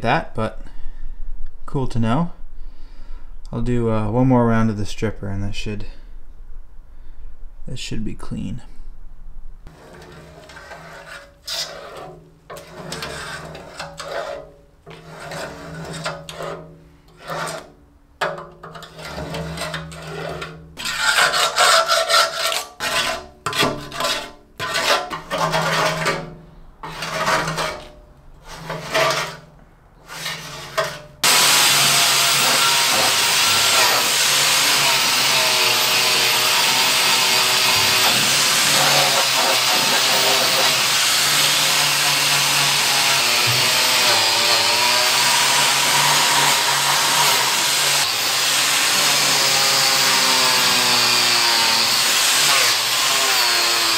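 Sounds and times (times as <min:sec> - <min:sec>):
angle grinder on metal: 0:09.7 - 0:16.6, 0:18.8 - 0:29.5, 0:30.1 - 0:53.9
paint scraping off metal: 0:09.7 - 0:17.8, 0:18.6 - 0:31.2.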